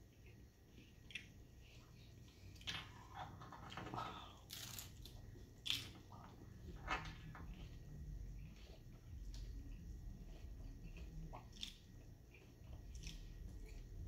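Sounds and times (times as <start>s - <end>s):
crunching taco shell: 4.4s - 6.4s.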